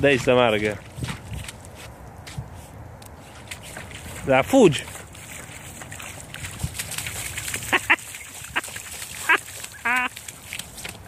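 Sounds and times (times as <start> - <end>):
boots splashing through slush: 0.1 - 11.0
high vocal calls: 7.7 - 10.1.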